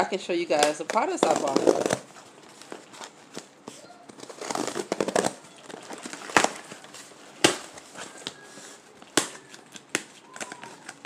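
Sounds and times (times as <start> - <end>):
cardboard box rustling and tearing: 1.1 - 8.8.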